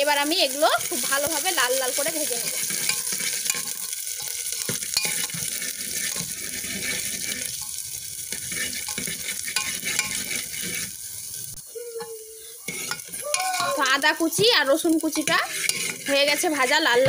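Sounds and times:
garlic and ginger sizzling in oil: 0.0 - 17.0
metal ladle scraping a pot: 2.5 - 11.1, 12.7 - 17.0.

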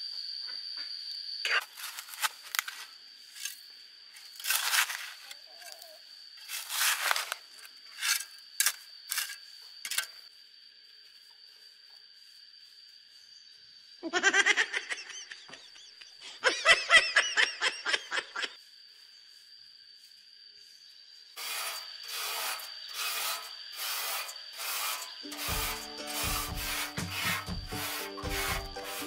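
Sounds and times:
gloved hand scraping soil: 4.2 - 5.8, 6.4 - 10.0, 21.4 - 29.0
background music low notes: 25.2 - 29.0.

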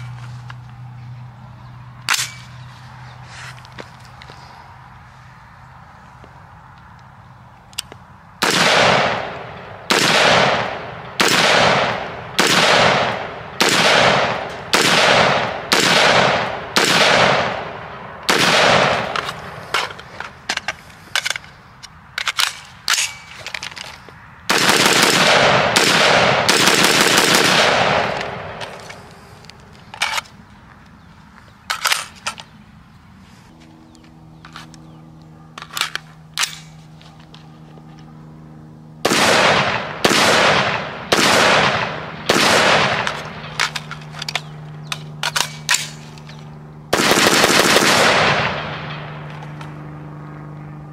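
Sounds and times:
sharp cracks: 2.0 - 2.6, 7.7 - 30.3, 39.0 - 49.8
automatic gunfire bursts: 9.9 - 17.5, 24.5 - 28.6, 39.1 - 43.1, 46.9 - 48.8.

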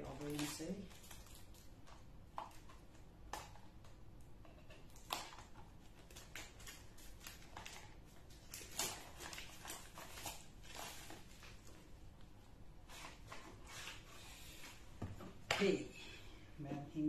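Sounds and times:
plastic wrap scratching and crinkling: 0.0 - 3.6, 4.8 - 12.0.

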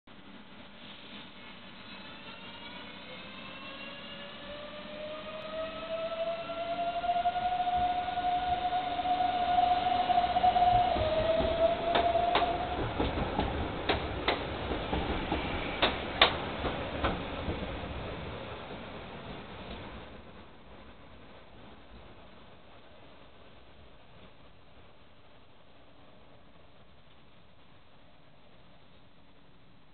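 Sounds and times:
electric tram traction whine: 0.8 - 19.0
wheels clacking on track: 10.5 - 19.9.

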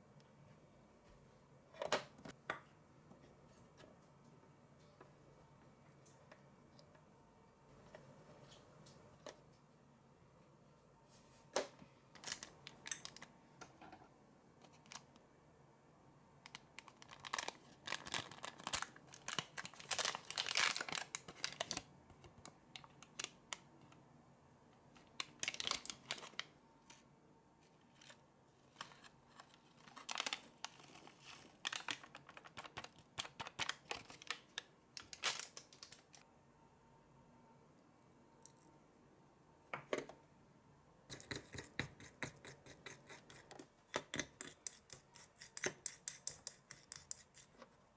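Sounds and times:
foil sachet crinkling: 16.5 - 21.9, 25.1 - 26.5, 29.8 - 36.2.

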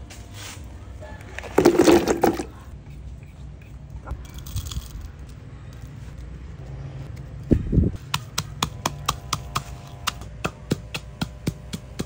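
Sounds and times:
pestle pounding in mortar: 8.1 - 12.0.

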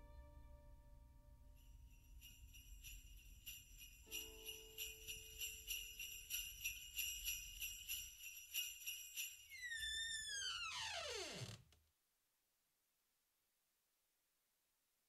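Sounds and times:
sleigh bells jingling: 1.6 - 10.3.

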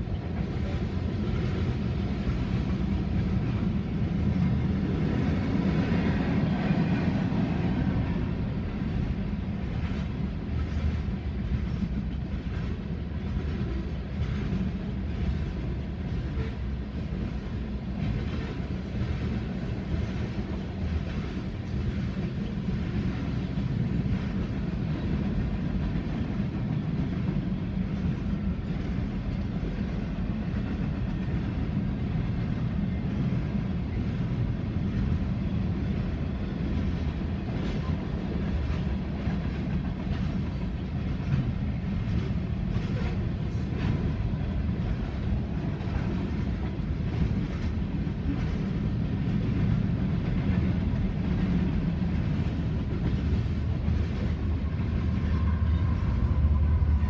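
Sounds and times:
train wheels rumbling on rails: 0.0 - 57.0.

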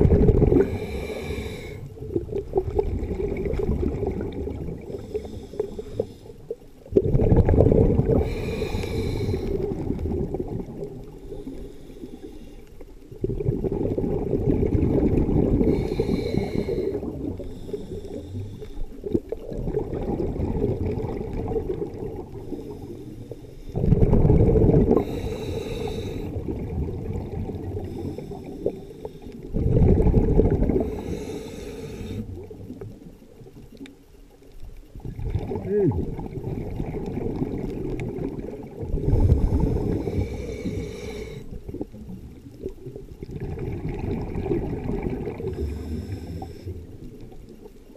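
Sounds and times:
exhaled bubbles rumbling underwater: 0.0 - 47.9
regulator breathing: 0.6 - 1.9, 4.9 - 6.6, 8.2 - 9.7, 15.7 - 19.0, 30.9 - 32.3, 39.1 - 41.6.

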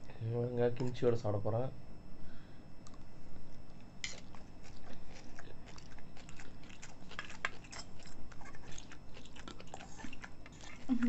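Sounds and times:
noodles slurped and chewed: 4.1 - 11.0.

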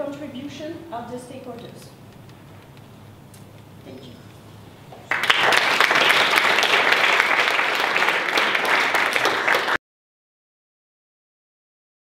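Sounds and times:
audience applauding: 5.0 - 9.8.

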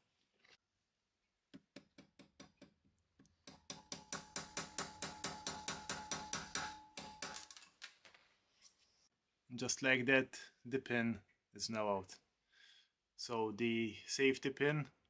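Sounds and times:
hammer striking metal punch: 3.5 - 7.4.

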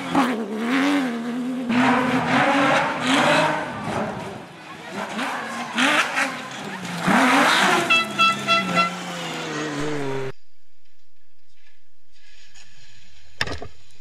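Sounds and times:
car engine revving past: 5.1 - 10.4
horn short blasts: 7.6 - 10.3.

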